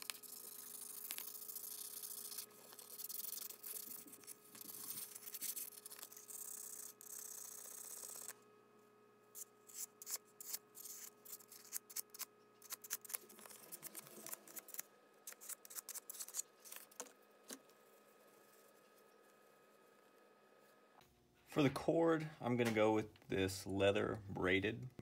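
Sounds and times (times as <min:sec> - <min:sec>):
sandpaper scratching metal: 0:00.0 - 0:08.3.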